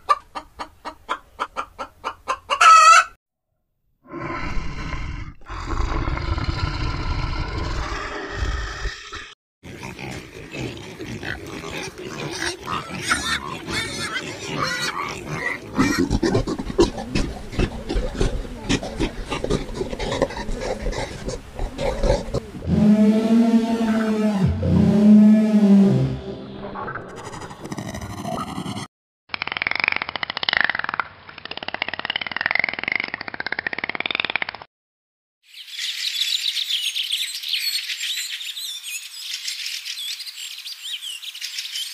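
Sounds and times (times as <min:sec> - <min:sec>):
pigs grunting: 0:04.1 - 0:22.8
pigs squealing: 0:08.1 - 0:22.8.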